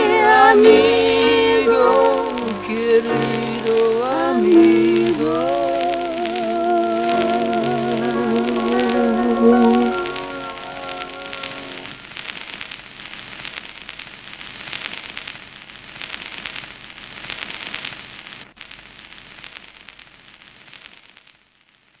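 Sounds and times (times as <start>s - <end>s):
held sung note: 0.0s - 12.0s.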